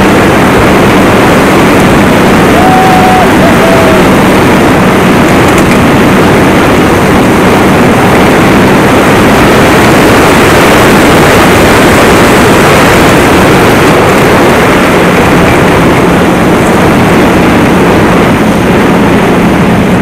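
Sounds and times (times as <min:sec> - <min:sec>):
snowmobile engine running: 0:00.0 - 0:20.0.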